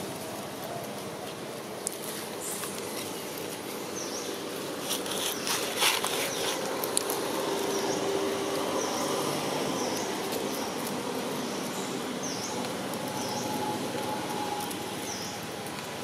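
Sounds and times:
dry leaves crackling: 0.0s - 16.0s.

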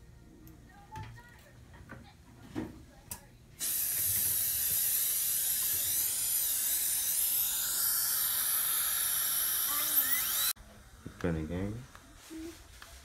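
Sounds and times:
dental suction hiss: 3.6s - 10.6s
dental drill whine: 3.6s - 11.2s.

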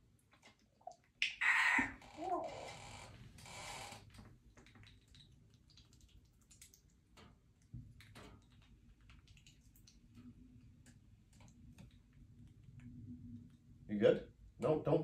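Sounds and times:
faint clicks and taps: 4.0s - 13.8s.

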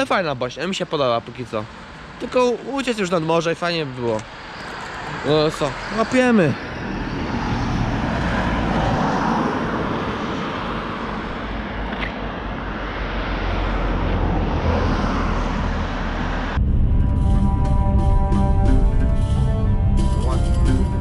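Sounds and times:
road traffic rumble: 0.0s - 21.0s
music: 16.6s - 21.0s.

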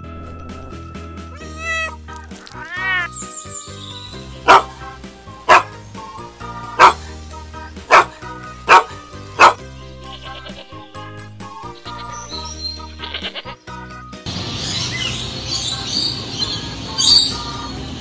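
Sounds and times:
background music: 0.0s - 18.0s
dog barking: 4.4s - 4.8s, 5.5s - 5.8s, 6.8s - 7.0s, 7.9s - 9.6s.

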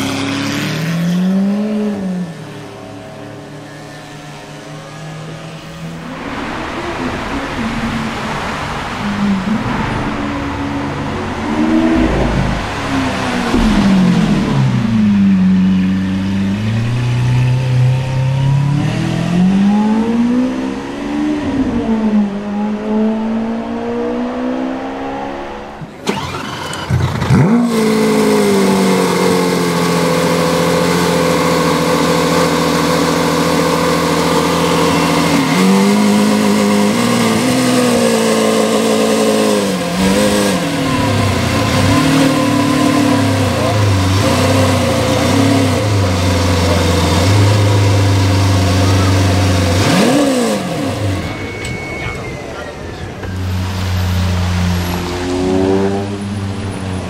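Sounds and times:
sports car engine revving: 9.1s - 26.3s, 26.9s - 51.5s
sports car engine starting and idling: 25.0s - 57.0s.

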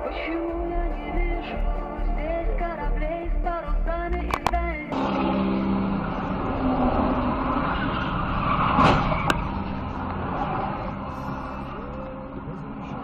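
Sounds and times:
engine and road noise: 0.0s - 13.0s
sharp click: 4.1s - 4.6s
car collision impact: 8.7s - 9.5s.

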